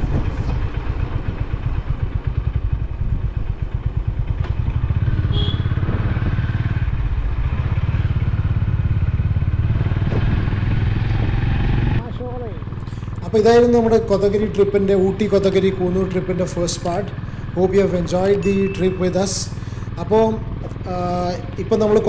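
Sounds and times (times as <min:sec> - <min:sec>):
motorcycle engine thudding: 0:00.0 - 0:11.4.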